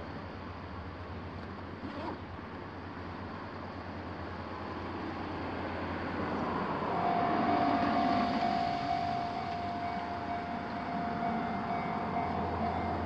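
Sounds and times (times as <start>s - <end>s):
road traffic rumble: 0.0s - 13.0s
car approaching: 4.0s - 13.0s.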